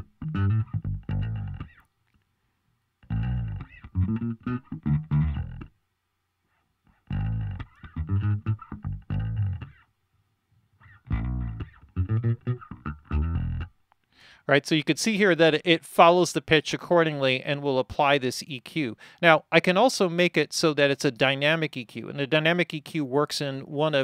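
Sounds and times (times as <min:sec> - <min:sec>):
plucked bass guitar notes: 0:00.0 - 0:01.8, 0:03.0 - 0:05.8, 0:07.0 - 0:09.8, 0:10.8 - 0:13.8.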